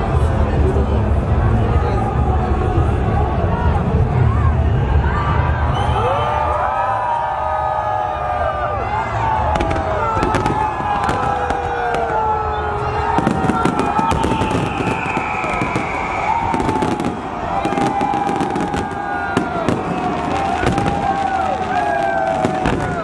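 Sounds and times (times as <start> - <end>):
whistling firework tones: 5.7 - 6.6, 9.5 - 23.0
fireworks bursting and crackling: 9.4 - 23.0.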